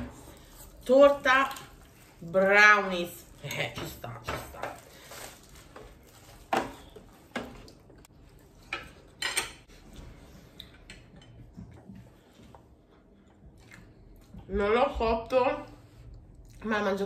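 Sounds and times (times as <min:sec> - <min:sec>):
food packaging crinkling: 0:04.6 - 0:07.8.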